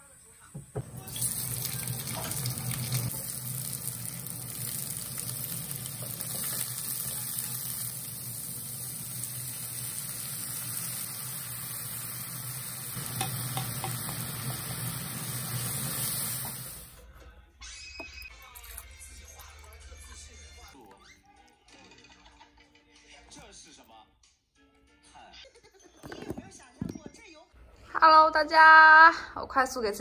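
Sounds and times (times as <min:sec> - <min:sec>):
food sizzling in a wok: 0:00.0 - 0:17.0.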